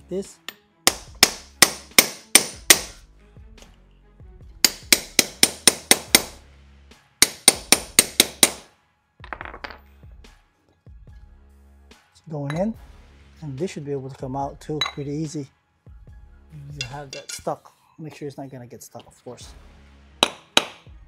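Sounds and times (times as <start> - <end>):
hammer striking metal: 0.9 - 3.0, 4.6 - 6.4, 7.2 - 8.7, 16.8 - 17.5, 20.2 - 20.9.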